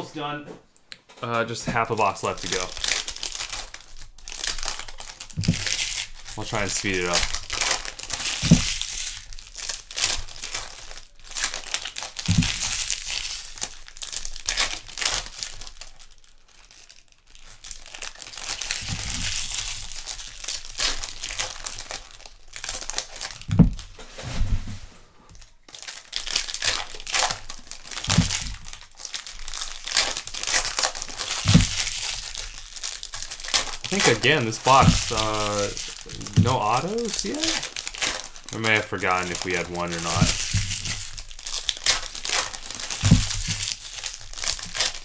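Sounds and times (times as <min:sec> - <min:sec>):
wrappers tearing and crinkling: 0:01.8 - 0:24.3, 0:25.3 - 0:45.0
dull bumps: 0:23.5 - 0:24.9, 0:28.0 - 0:28.6, 0:31.4 - 0:31.8, 0:34.7 - 0:35.3, 0:36.0 - 0:37.2, 0:43.0 - 0:43.6.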